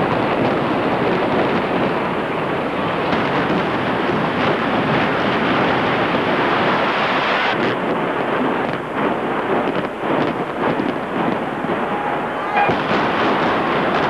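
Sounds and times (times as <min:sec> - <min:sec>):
building collapsing rumble: 0:07.6 - 0:14.0.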